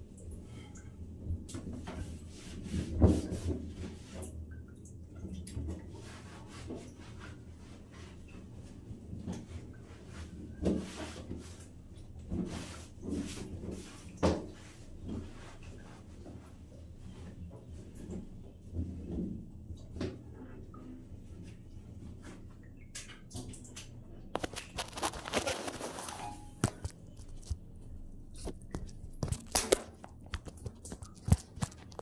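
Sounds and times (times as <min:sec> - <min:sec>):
water dripping in plastic pipe: 0:00.0 - 0:02.5, 0:03.1 - 0:08.4, 0:17.6 - 0:27.6, 0:28.3 - 0:32.0.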